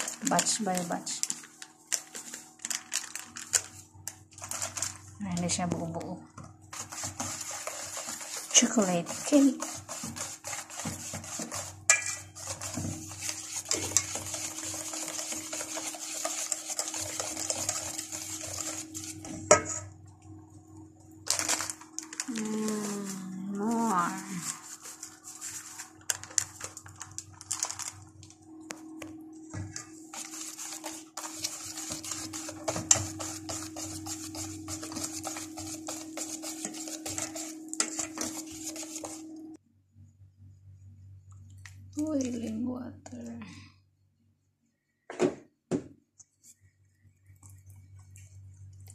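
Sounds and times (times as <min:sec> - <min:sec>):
steady hum: 0:03.4 - 0:44.8
fork scraping in plastic tub: 0:06.7 - 0:19.9, 0:29.6 - 0:39.4.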